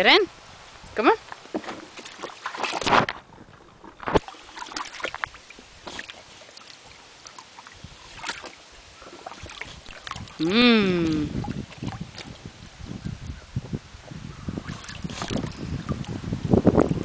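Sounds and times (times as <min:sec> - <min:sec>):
dog paws splashing in water: 0:01.2 - 0:10.4, 0:11.1 - 0:12.5, 0:14.6 - 0:16.2.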